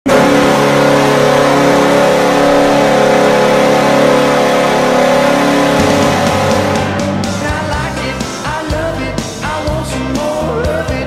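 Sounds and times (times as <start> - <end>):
arena goal horn blast: 0.1 - 8.4.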